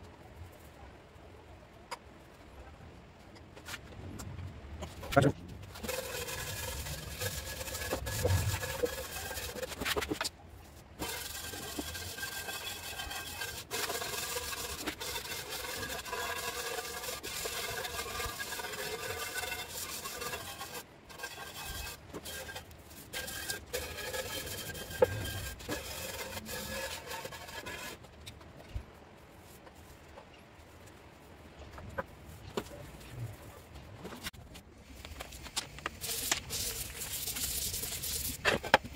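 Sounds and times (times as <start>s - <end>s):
scraper and brush scraping paint off steel: 5.0s - 31.0s, 31.8s - 38.9s.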